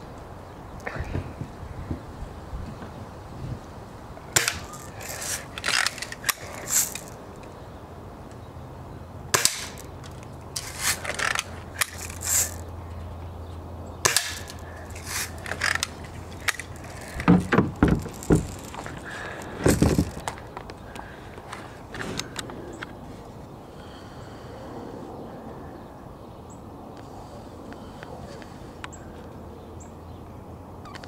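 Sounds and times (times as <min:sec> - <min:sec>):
pellets hitting plastic targets: 0:04.4 - 0:07.2, 0:09.3 - 0:12.6, 0:14.0 - 0:20.4.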